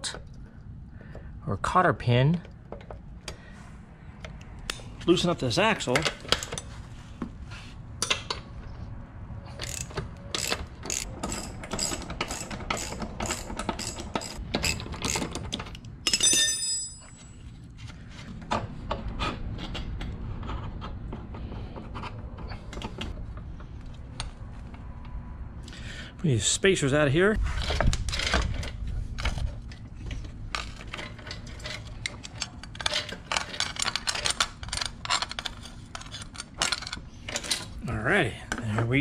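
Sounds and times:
metal parts rubbing: 9.5 - 15.4, 30.5 - 37.8
socket ratchet clicking: 9.6 - 15.6
metal tool ringing: 16.1 - 17.3.

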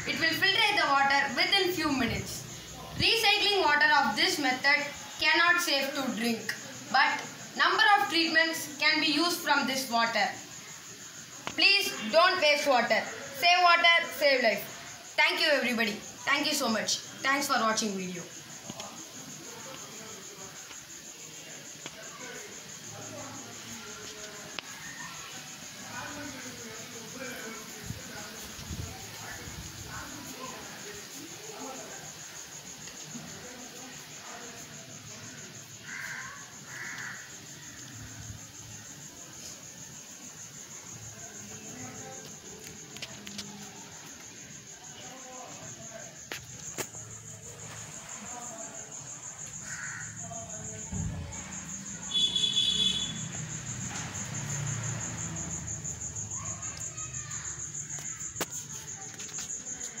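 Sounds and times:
high-pitched insect trill: 0.0 - 60.0
crow cawing: 35.8 - 37.4, 49.6 - 50.2.

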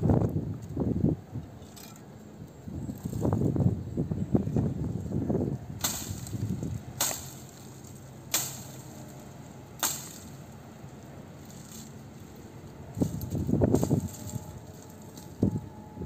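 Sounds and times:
tool chopping branches: 5.8 - 15.6.

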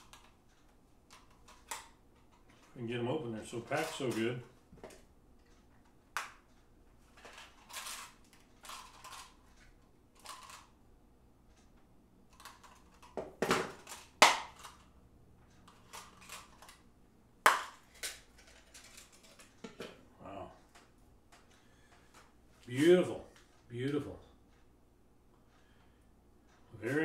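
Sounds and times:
package rustling and snapping: 17.5 - 19.7.

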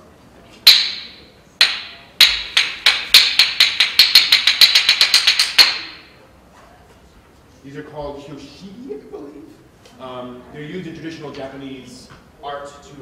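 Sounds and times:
wooden clappers clacking: 0.6 - 6.2.

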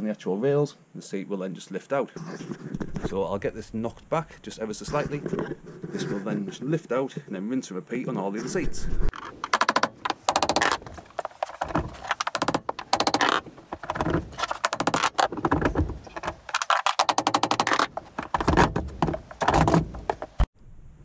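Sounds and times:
metal seat frame rattling: 9.1 - 20.5.

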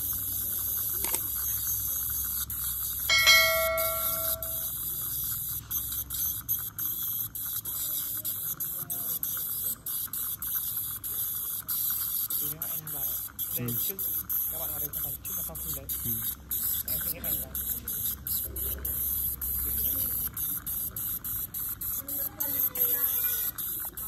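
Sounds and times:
dental scaler hissing: 0.0 - 24.0
bell-like ring: 3.1 - 4.7.

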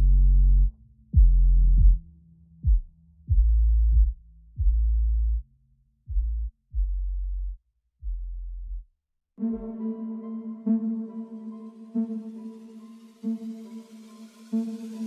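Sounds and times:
deep bass hits: 1.2 - 2.0, 2.6 - 5.4.

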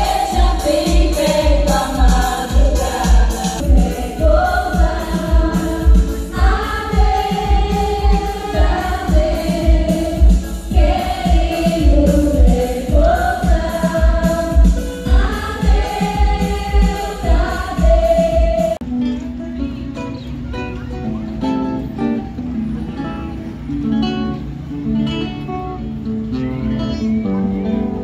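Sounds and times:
chorus of girls singing: 0.0 - 18.8
steady bass beat: 0.0 - 18.8.

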